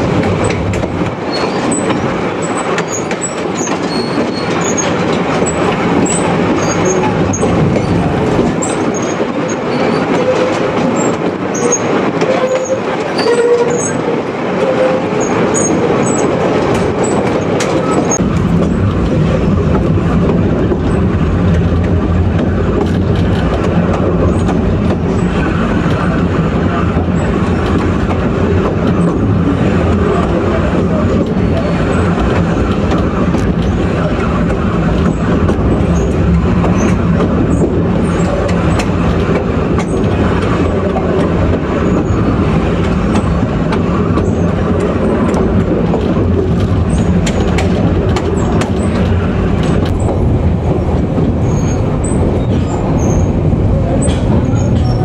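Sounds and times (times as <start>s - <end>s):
diesel locomotive engine drone: 0.0s - 55.0s
wheels clicking over rail joints: 15.2s - 55.0s.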